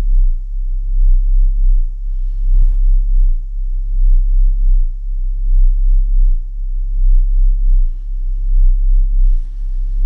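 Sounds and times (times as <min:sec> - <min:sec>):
deep electronic tone pulsing: 0:00.0 - 0:10.0.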